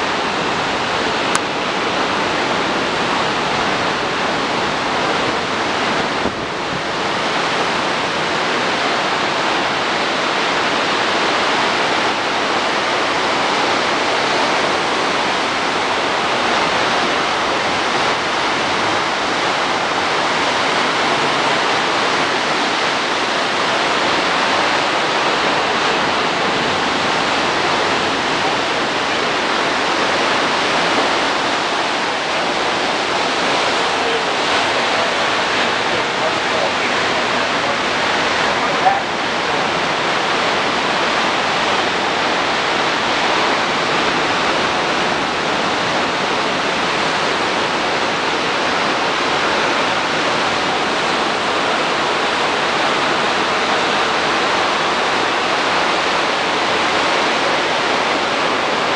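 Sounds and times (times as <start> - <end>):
ocean surf breaking: 0.0 - 58.9.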